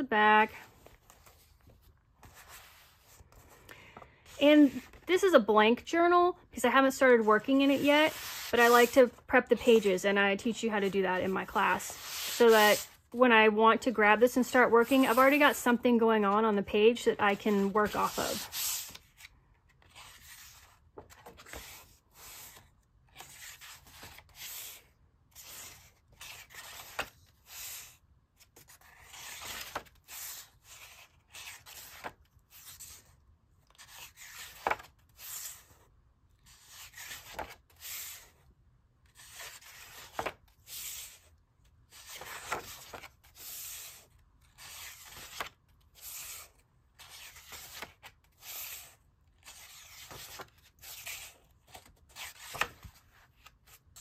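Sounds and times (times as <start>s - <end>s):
paper pages rustling: 0.6s - 5.1s, 17.3s - 27.9s, 28.5s - 33.1s, 33.7s - 35.8s, 39.1s - 41.2s, 41.9s - 54.0s.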